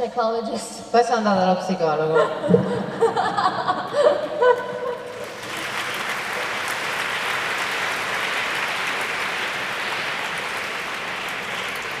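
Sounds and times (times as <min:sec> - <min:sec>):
large audience applauding: 0:04.9 - 0:12.0.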